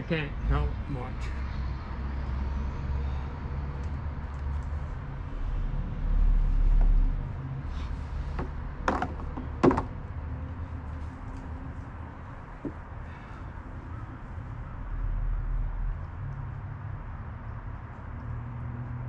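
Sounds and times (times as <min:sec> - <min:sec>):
sharp knocks: 0:08.3 - 0:10.0.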